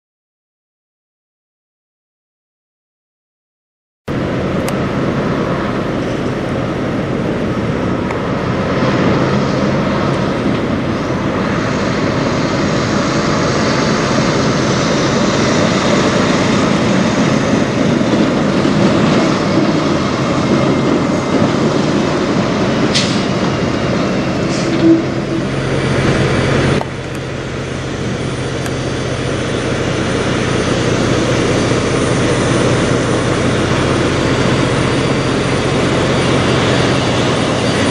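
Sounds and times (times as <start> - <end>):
truck diesel engine: 4.1 - 37.9
tyre and road noise: 4.1 - 37.9
short sharp sound: 24.5 - 26.2.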